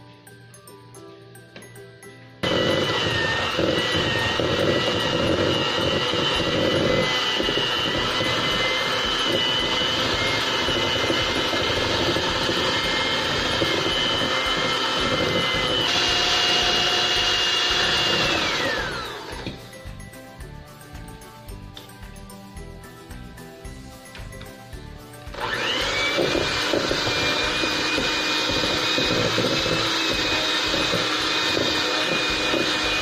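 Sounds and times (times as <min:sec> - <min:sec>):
electric hand mixer whine: 0:02.4 - 0:20.1, 0:25.2 - 0:33.0.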